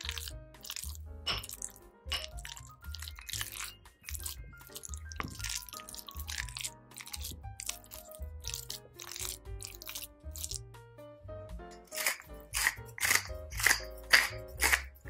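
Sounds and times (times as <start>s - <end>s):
wooden spatula mashing in glass bowl: 0.0s - 10.6s
background music: 0.0s - 15.0s.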